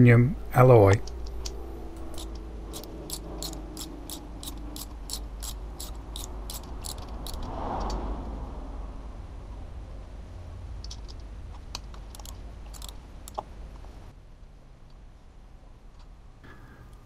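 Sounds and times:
ratchet wrench clicking: 1.0 - 8.0, 12.1 - 13.4.

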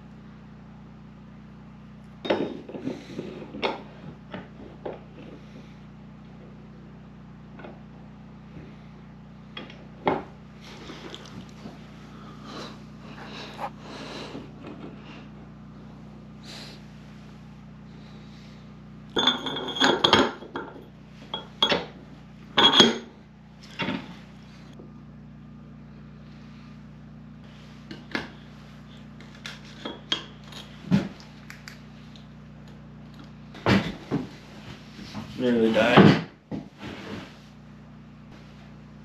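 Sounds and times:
steady low hum: 0.0 - 39.0
steel parts clinking and clanking: 19.1 - 22.0, 22.6 - 24.0.

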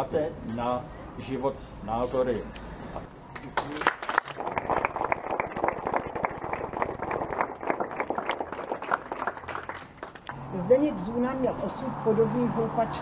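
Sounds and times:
crowd applauding: 3.4 - 10.4.

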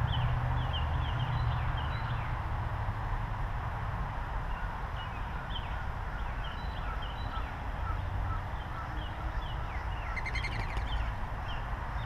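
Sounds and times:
small birds chirping: 4.5 - 12.0
bird trill: 5.0 - 11.6.

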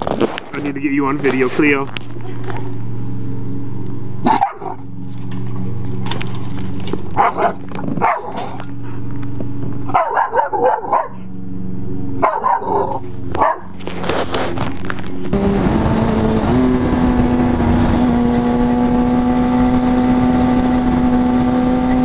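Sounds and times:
dog barking and yipping: 4.2 - 4.8, 7.2 - 8.6, 9.9 - 11.3, 12.2 - 13.8.

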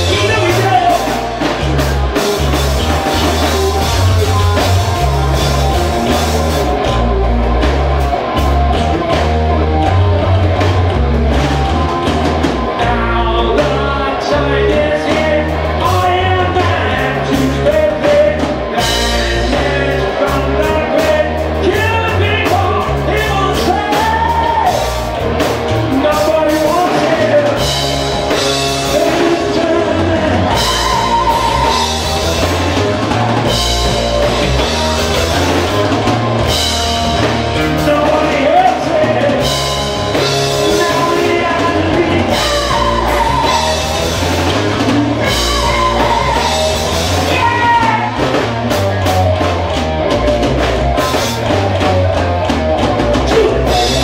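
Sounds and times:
man singing: 0.0 - 1.6, 12.6 - 25.0, 25.7 - 35.6, 37.2 - 48.5, 53.0 - 54.0
live rock band playing: 0.0 - 54.0.

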